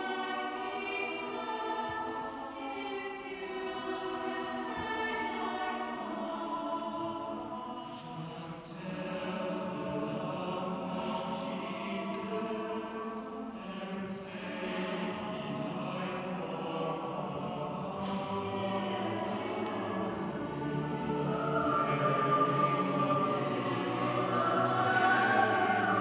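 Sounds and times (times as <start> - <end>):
choir singing held chords: 0.0 - 26.0.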